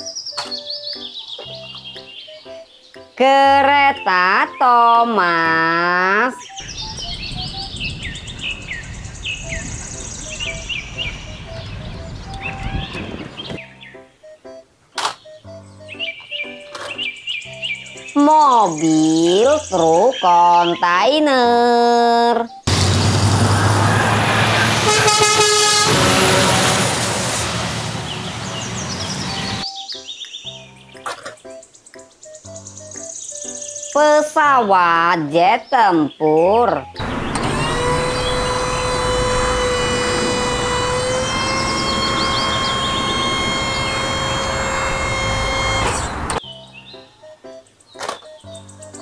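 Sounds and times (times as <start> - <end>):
birds chirping: 0.0 - 25.8, 27.9 - 49.0
truck engine and tyre noise: 6.5 - 13.6, 22.7 - 29.6, 37.0 - 46.4
steady low rumble: 6.6 - 12.4
truck horn: 22.7 - 29.6, 37.0 - 46.4.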